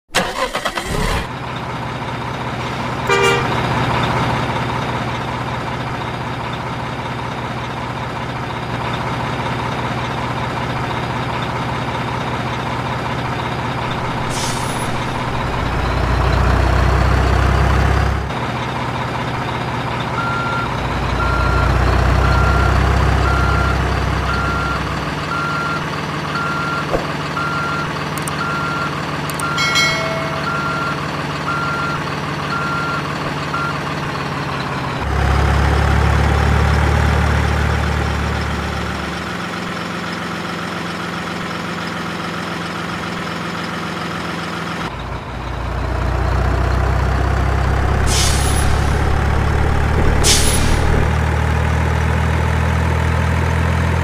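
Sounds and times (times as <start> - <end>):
truck engine droning: 0.1 - 54.0
reversing alarm beeping: 20.2 - 25.8, 26.4 - 33.8.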